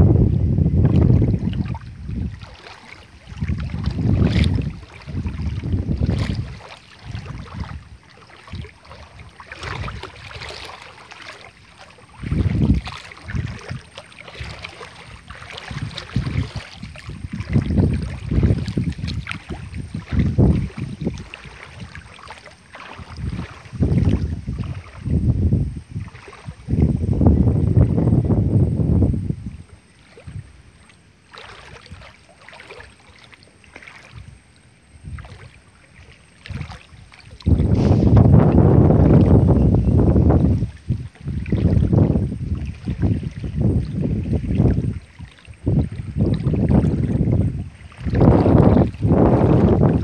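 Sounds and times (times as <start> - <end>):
wind buffeting microphone: 0.0 - 11.4, 12.0 - 30.8, 34.0 - 35.5, 36.4 - 50.0
faint outdoor hiss: 6.5 - 38.9.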